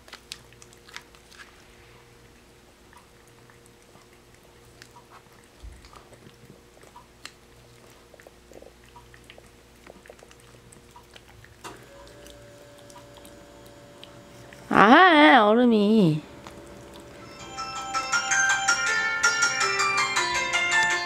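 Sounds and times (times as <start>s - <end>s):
cat licking and chewing food: 0.0s - 15.1s, 15.8s - 21.0s.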